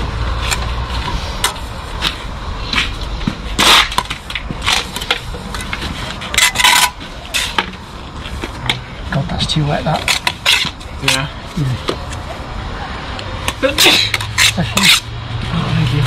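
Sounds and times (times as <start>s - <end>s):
trowel scraping and clinking: 3.6s - 7.8s, 10.0s - 11.3s, 13.5s - 15.1s.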